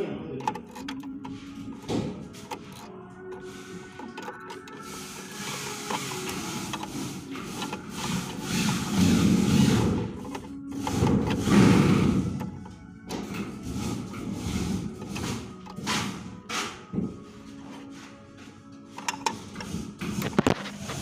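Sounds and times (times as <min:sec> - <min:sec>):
rapid plastic clicks: 0:00.4 - 0:12.7.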